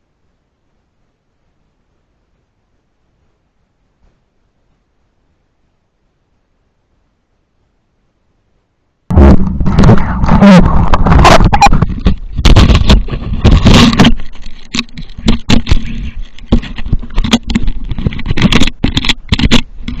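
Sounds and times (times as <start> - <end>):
camera handling knocks and rubbing: 10.8 - 20.0.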